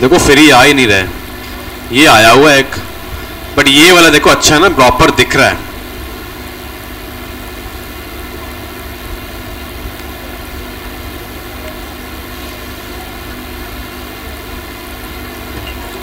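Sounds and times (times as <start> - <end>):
background hum and hiss: 0.0 - 16.0.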